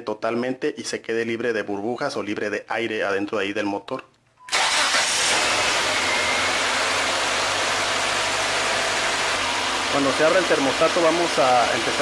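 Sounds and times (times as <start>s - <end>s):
car engine idling: 4.6s - 12.0s.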